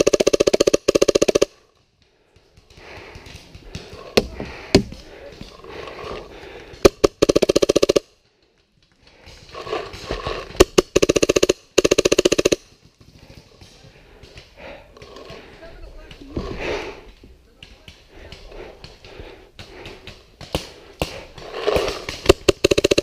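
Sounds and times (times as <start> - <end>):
paintball marker firing: 0.0 - 1.6, 6.6 - 8.1, 9.2 - 12.8, 18.4 - 23.0.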